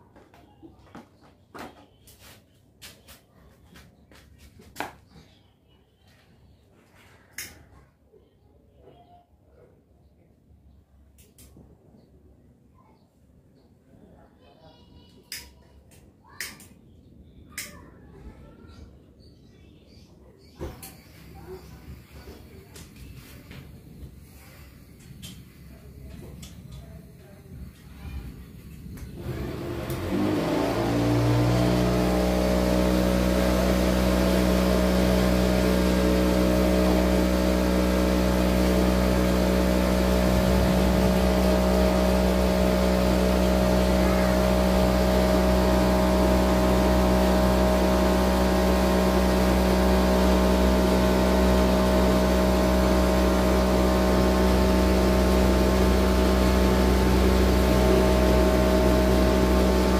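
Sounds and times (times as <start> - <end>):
electric motor humming: 29.1 - 59.9.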